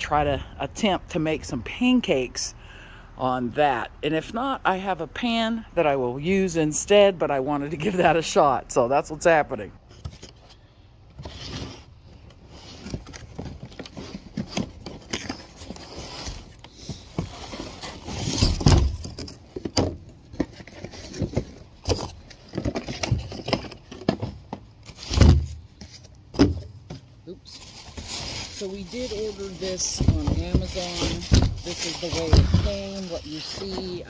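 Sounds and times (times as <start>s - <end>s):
cardboard packaging rustling: 9.8s - 34.0s
heavy thumps: 29.7s - 32.9s.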